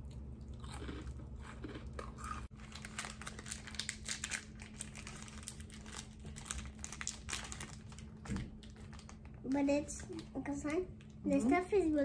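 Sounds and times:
plastic wrapper crinkling: 0:02.5 - 0:10.4.

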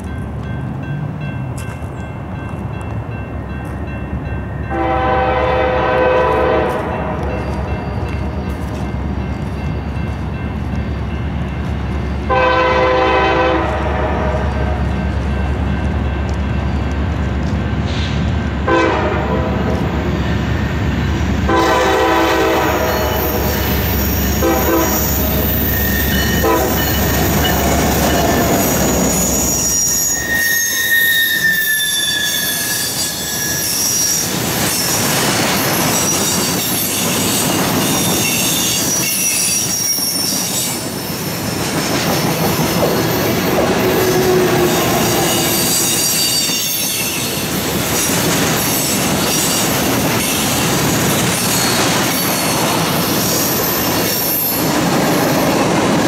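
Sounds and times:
locomotive horn blasts: 0:04.7 - 0:07.8, 0:12.3 - 0:14.9, 0:18.7 - 0:19.8, 0:21.5 - 0:23.6, 0:24.3 - 0:28.5
train wheels squealing: 0:22.8 - 0:55.7.

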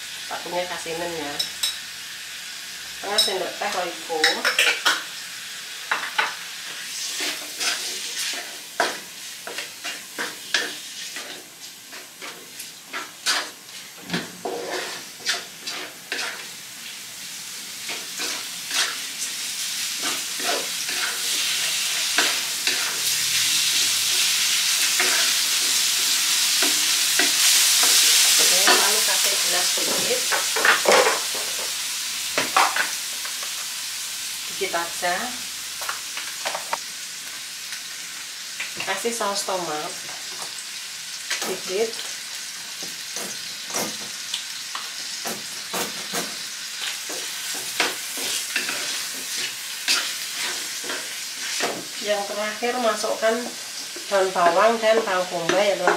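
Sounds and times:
food sizzling in a wok: 0:00.0 - 0:55.9
wooden spatula scraping a pan: 0:06.7 - 0:13.8, 0:14.4 - 0:16.5, 0:19.8 - 0:23.8, 0:45.5 - 0:55.9.

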